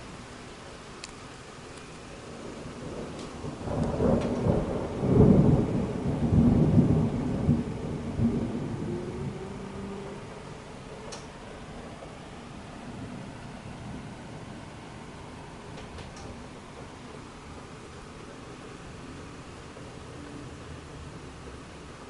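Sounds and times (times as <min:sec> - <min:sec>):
steady rain: 0:00.0 - 0:22.0
thunder rolling: 0:02.3 - 0:12.0.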